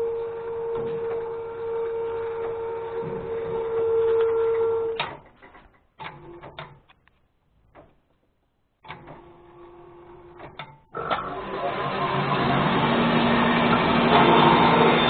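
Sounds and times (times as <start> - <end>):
band sawmill humming: 11.3 - 15.0.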